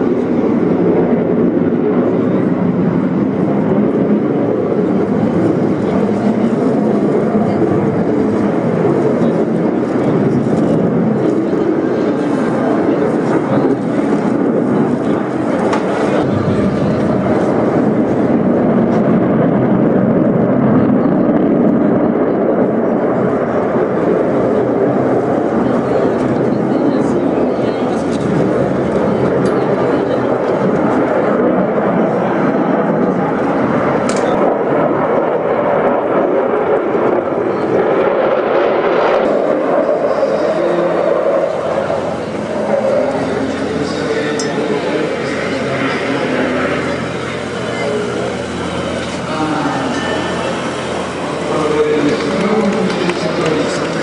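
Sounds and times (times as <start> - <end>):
jet engines roaring: 0.0 - 54.0
high jet hiss: 41.5 - 54.0.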